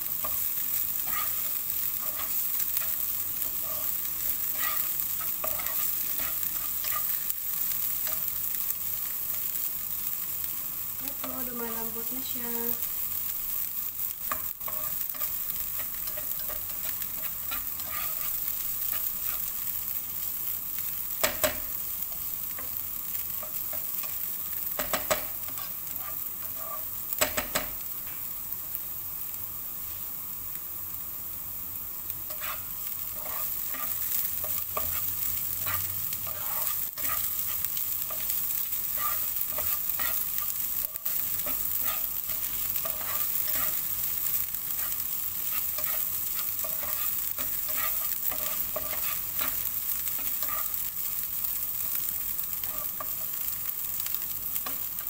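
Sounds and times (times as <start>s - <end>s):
onion sizzling in a frying pan: 0.0s - 55.0s
utensil scraping and clicking on pan: 1.0s - 7.2s, 14.3s - 19.4s, 32.3s - 43.9s.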